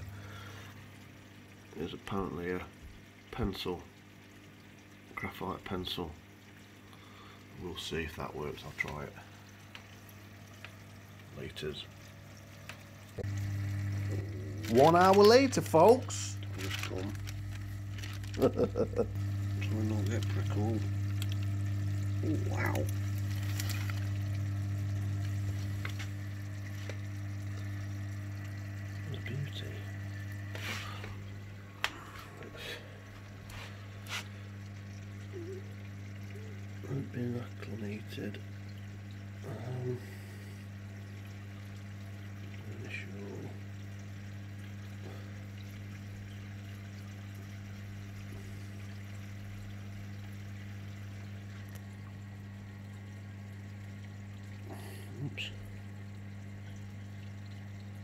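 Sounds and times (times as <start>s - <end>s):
faint water splashing: 0.0s - 58.0s
steady low hum: 0.0s - 58.0s
plastic bag crinkling: 16.4s - 19.0s, 23.2s - 24.2s.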